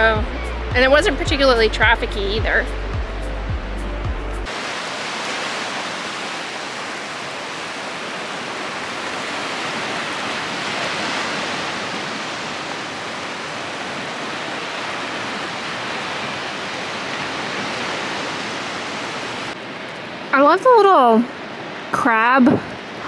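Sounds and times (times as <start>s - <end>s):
small waves washing on sand: 4.5s - 20.3s.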